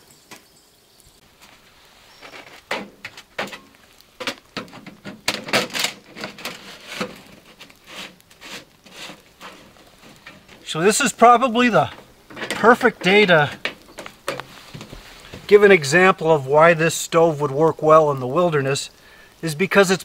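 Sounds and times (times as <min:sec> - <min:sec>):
thin metal knocks and scrapes: 0:02.3 - 0:10.7, 0:11.8 - 0:15.5.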